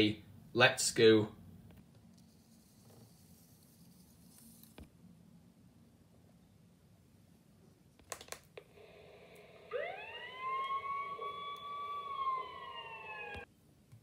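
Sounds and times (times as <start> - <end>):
siren-like rising tone: 8.7 - 13.5.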